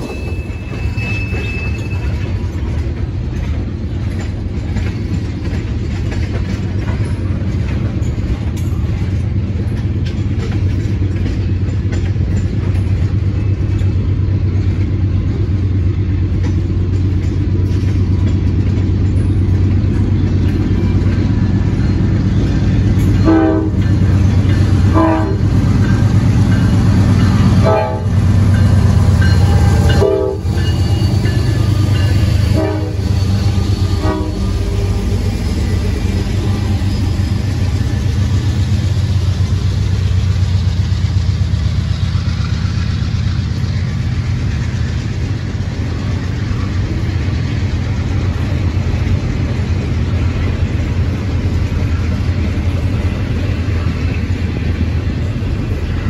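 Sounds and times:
diesel locomotive engine rumble: 0.0s - 56.0s
train horn blasts: 23.2s - 24.0s, 24.8s - 25.6s, 27.5s - 28.3s, 29.3s - 35.2s.

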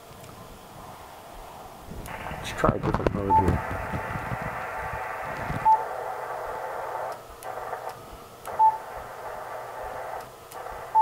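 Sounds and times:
radio band noise hissing: 0.0s - 11.0s
short radio beeps: 3.2s - 3.6s, 5.6s - 5.9s, 8.5s - 8.9s.

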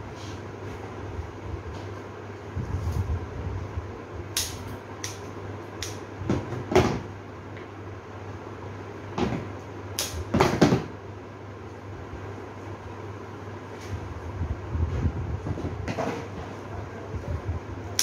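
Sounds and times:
steady low hum: 0.0s - 18.0s
scissors snipping stems: 4.4s - 6.0s.

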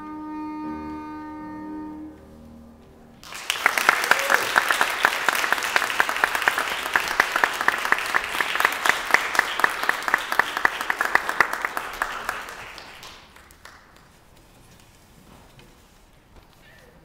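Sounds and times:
audience applauding: 3.2s - 14.2s.

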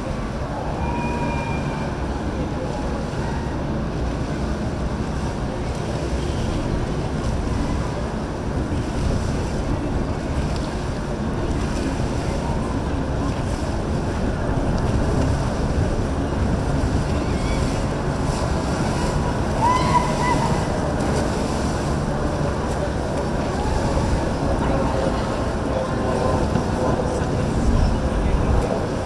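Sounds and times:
boat engines rumbling: 0.0s - 29.0s
waves washing: 0.0s - 29.0s
wind buffeting microphone: 0.0s - 29.0s.

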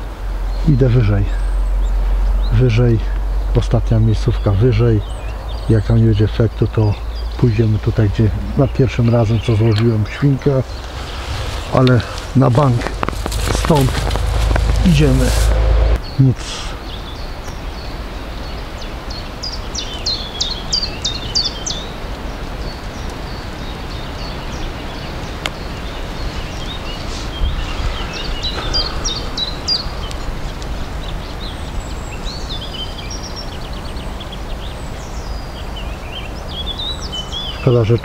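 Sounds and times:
songbirds chirping: 0.0s - 38.0s
wind rumble on microphone: 1.4s - 16.2s, 20.7s - 37.5s.

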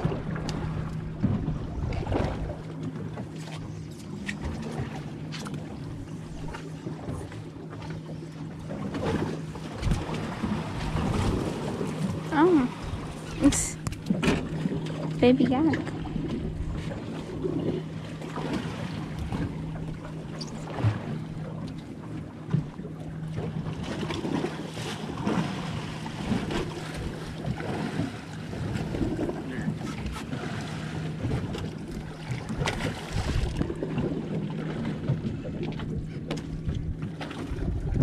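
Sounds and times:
steady low hum: 0.0s - 38.0s
wind on microphone: 9.7s - 14.0s, 32.4s - 34.2s, 35.1s - 38.0s.

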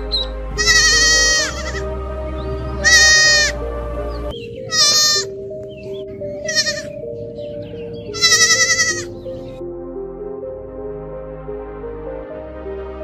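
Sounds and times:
slow background music: 0.0s - 13.0s
young goat bleating: 0.6s - 1.9s, 2.8s - 3.6s, 4.7s - 5.4s, 6.3s - 7.1s, 8.1s - 9.2s.

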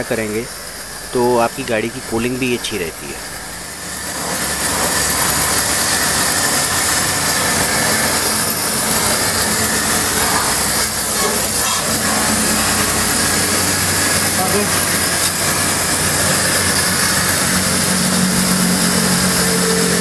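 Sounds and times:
washer pump humming: 0.0s - 20.0s
water jet spraying: 0.0s - 20.0s.

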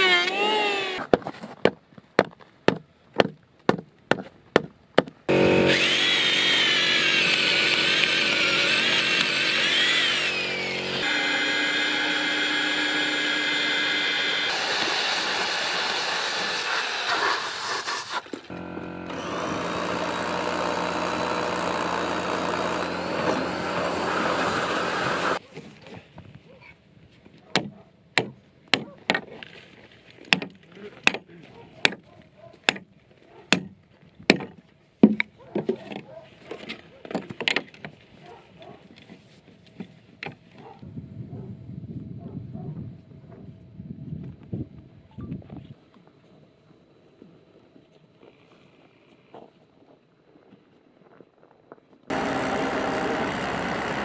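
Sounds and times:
electric drill boring through wood: 0.0s - 1.0s, 5.3s - 25.4s, 52.1s - 54.0s.

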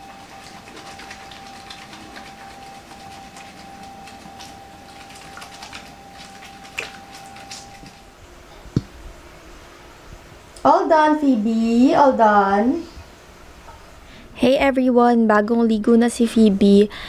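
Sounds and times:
wet clicks and squelches: 0.3s - 8.0s.

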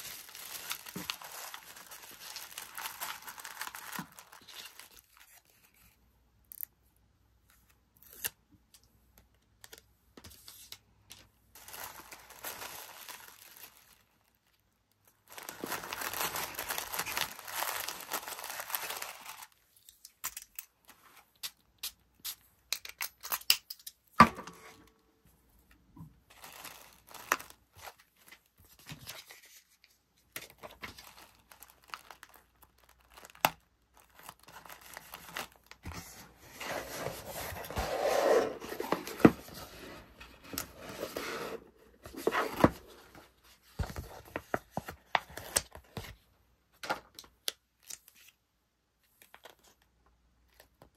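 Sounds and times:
paper rustling and crinkling: 0.0s - 6.0s, 9.6s - 21.3s, 26.3s - 46.2s.

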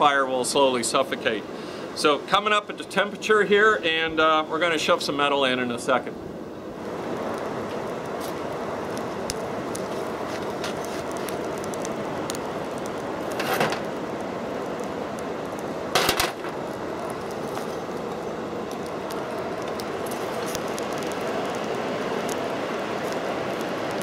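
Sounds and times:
blower air rushing: 0.0s - 24.0s
burning coal crackling: 0.0s - 24.0s
steel rod clanking and scraping: 13.4s - 13.8s, 16.0s - 16.5s.

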